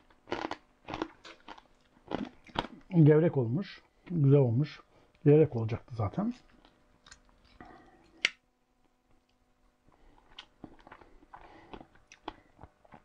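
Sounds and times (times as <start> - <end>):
chewing crackling: 0.2 - 2.9, 9.9 - 13.0.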